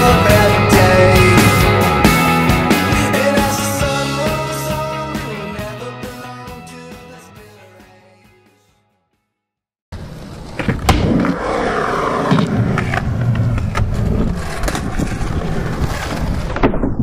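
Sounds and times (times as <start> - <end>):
skateboard wheels rolling: 10.0 - 17.0.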